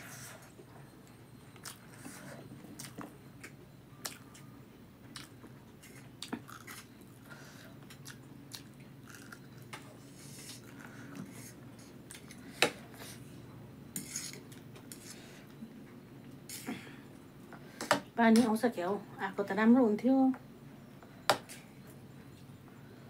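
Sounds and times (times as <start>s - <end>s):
chewing noodles: 1.6s - 11.2s.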